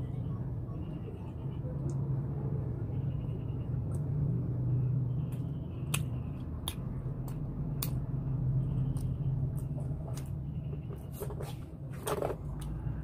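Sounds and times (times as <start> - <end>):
wet mouth clicks: 5.3 - 8.0.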